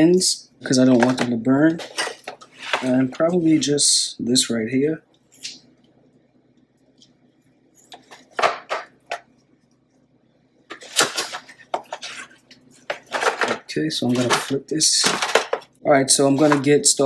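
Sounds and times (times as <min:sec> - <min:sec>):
foil pan crinkling and rattling: 0:10.7 - 0:15.8.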